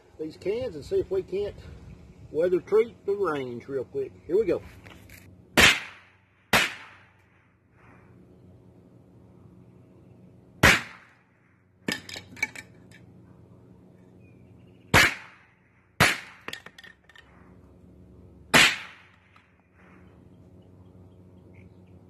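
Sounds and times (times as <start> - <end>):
rifle shots: 5.6 - 7.2, 10.6 - 11.1, 14.9 - 15.4, 18.5 - 19.4.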